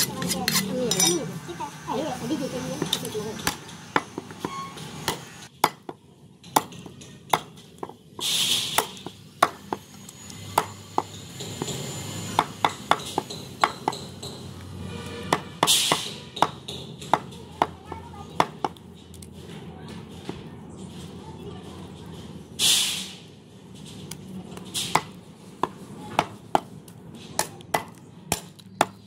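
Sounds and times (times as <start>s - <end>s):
cleaver chopping meat on wood: 12.4s - 14.4s, 15.3s - 17.8s, 24.9s - 26.7s, 27.4s - 29.0s.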